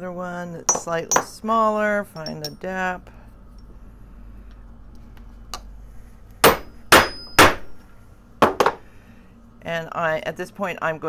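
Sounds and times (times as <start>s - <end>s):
hammer striking steel punch: 6.4s - 7.8s.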